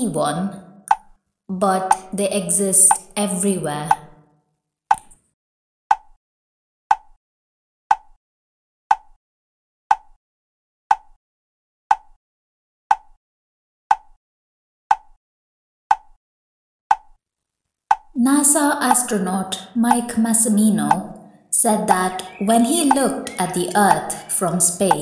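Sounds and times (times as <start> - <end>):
sharp woody ticking: 0.9 - 1.2, 2.8 - 3.2, 7.9 - 8.2, 8.9 - 9.2, 9.9 - 10.2, 10.9 - 11.2, 16.9 - 17.2, 17.9 - 18.2, 20.8 - 25.0.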